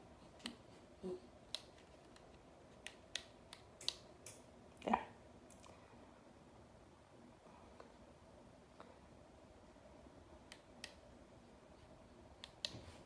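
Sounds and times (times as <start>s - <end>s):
steady background hiss: 0.0s - 13.0s
faint clicks and taps: 1.5s - 4.5s.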